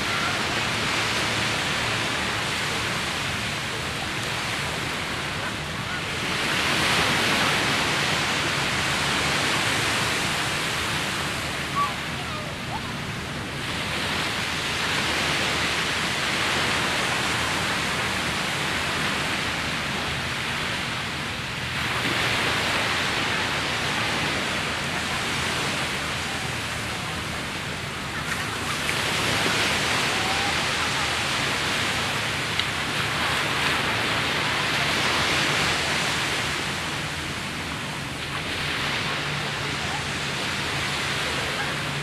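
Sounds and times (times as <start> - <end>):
surf breaking on beach: 0.0 - 42.0.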